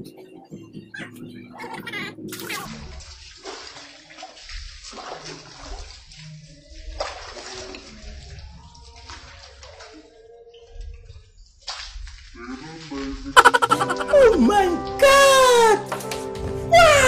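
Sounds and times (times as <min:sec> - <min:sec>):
water splashing and pouring: 0:02.3 - 0:15.0.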